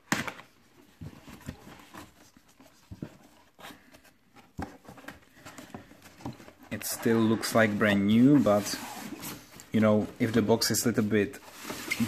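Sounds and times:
cardboard box scraping and rustling: 6.1s - 9.5s, 11.3s - 12.0s.

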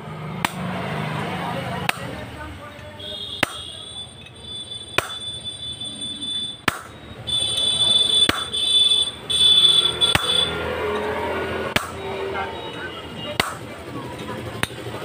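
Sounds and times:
shrill steady tone: 2.9s - 13.4s
sharp metal knocks: 3.4s - 5.3s, 6.6s - 7.0s, 8.1s - 8.7s, 10.0s - 11.1s, 11.7s - 12.0s.

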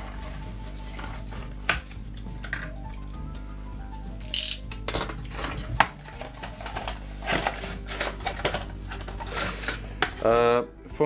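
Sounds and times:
soft background music: 0.0s - 11.0s
cardboard rustling: 5.1s - 10.3s.

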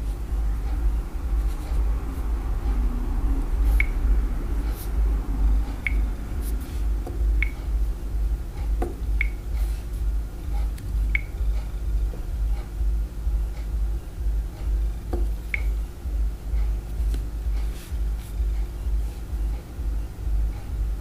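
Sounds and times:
low rumble: 0.0s - 21.0s
finger tapping touchscreen: 5.8s - 6.1s, 7.0s - 7.6s, 15.1s - 15.8s.

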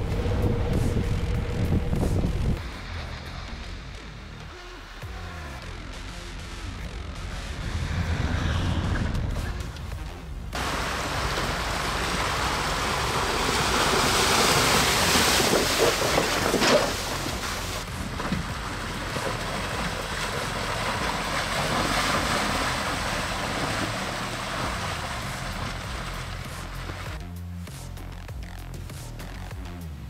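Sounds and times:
trucks driving through snow: 0.0s - 30.0s.

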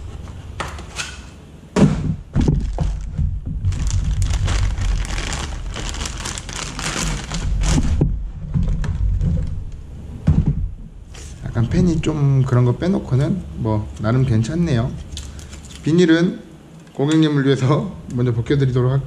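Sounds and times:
plastic bag crinkling: 2.4s - 8.0s.

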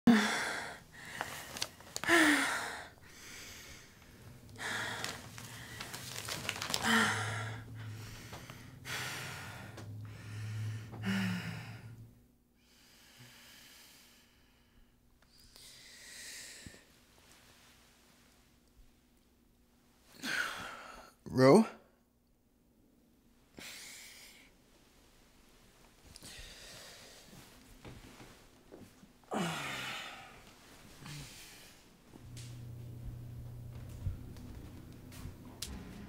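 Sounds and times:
woman breathing heavily: 0.1s - 16.9s, 20.1s - 21.2s, 23.5s - 24.6s, 26.2s - 28.3s, 29.3s - 32.3s
low steady hum: 0.1s - 36.0s.

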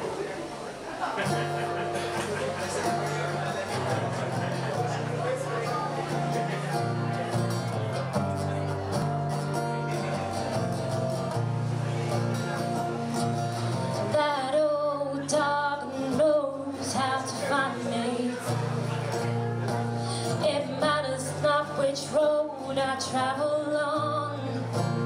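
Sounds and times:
strummed acoustic guitar: 1.1s - 25.0s
woman singing: 14.0s - 18.8s, 20.1s - 25.0s.

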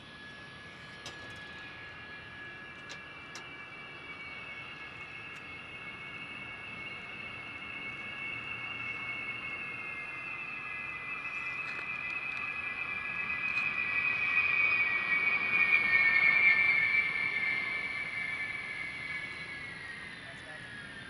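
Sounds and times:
jet engines whining: 0.0s - 21.0s.

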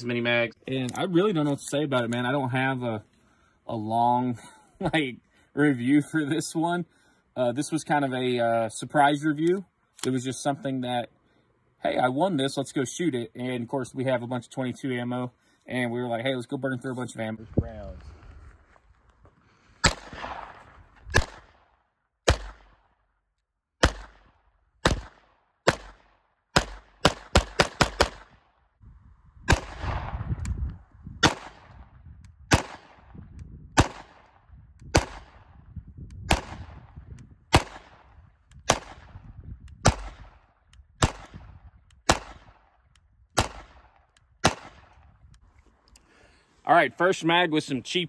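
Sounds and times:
pistol shots cracking: 19.8s - 22.9s, 23.8s - 28.5s, 29.5s - 30.2s, 31.2s - 31.8s, 32.5s - 33.2s, 33.8s - 35.5s, 36.2s - 39.2s, 39.8s - 42.8s, 43.4s - 45.0s.

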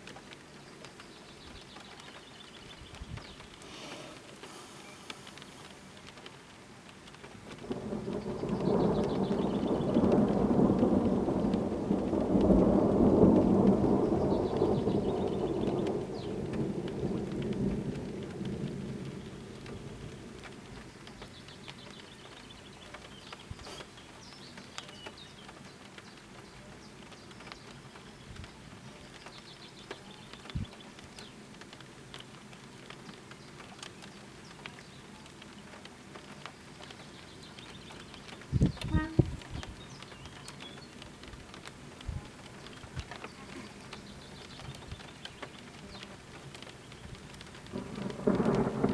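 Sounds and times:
faint rain: 0.0s - 48.9s
thunder rolling: 7.6s - 21.2s, 46.6s - 48.9s.

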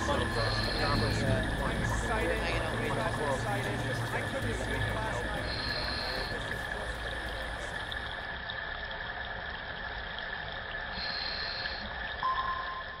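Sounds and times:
faint steady tones: 0.0s - 8.5s, 9.1s - 13.0s
watery rushing noise: 0.0s - 13.0s.

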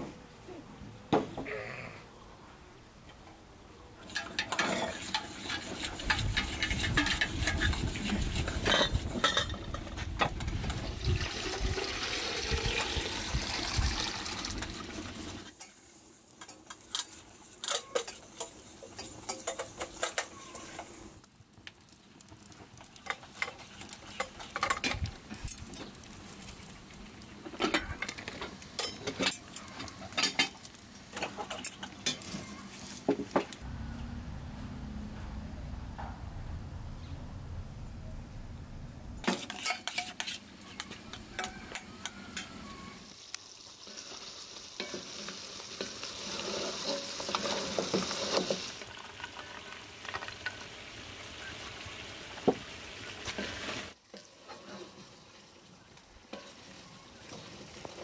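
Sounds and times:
dense loud noise: 33.6s - 39.3s.

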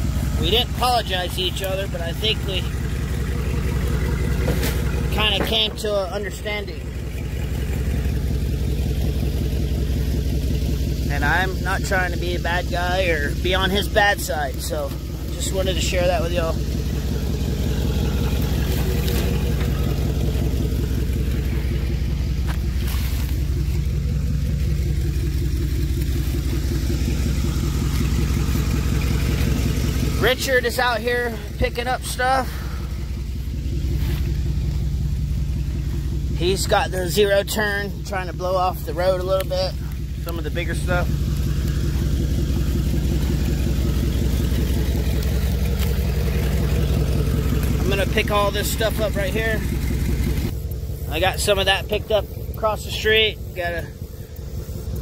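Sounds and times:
pickup truck engine idling: 0.0s - 55.0s.

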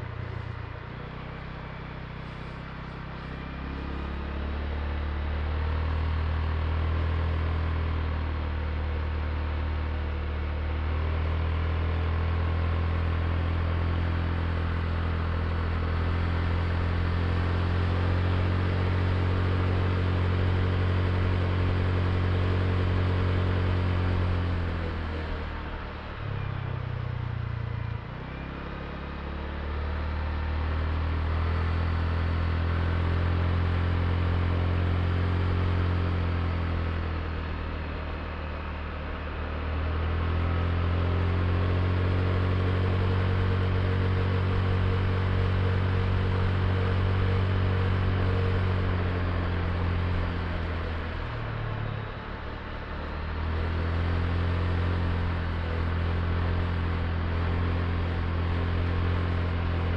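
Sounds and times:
road and wind noise: 0.0s - 59.9s
scooter engine running: 32.8s - 59.9s.

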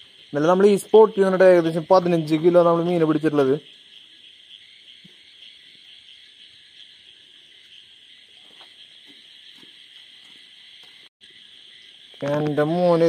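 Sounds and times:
crickets chirring: 0.0s - 13.0s.

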